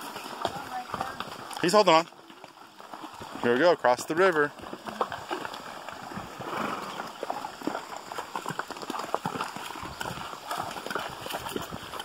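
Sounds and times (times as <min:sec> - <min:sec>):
hooves clopping on rocks: 0:00.0 - 0:12.0
hooves splashing through water: 0:00.0 - 0:12.0.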